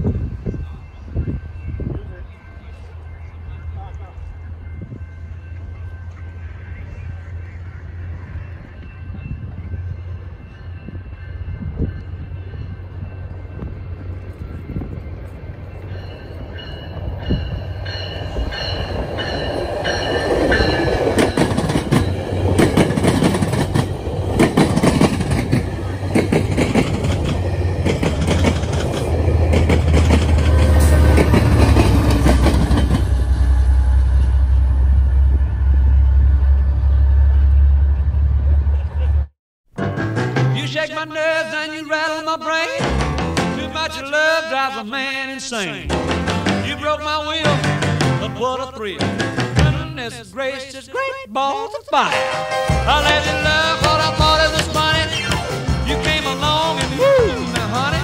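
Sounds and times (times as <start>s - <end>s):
high metallic ringing: 0.0s - 24.4s
diesel locomotive drone: 0.0s - 39.3s, 45.8s - 50.2s, 52.1s - 58.0s
train wheels clattering over joints: 17.2s - 33.3s.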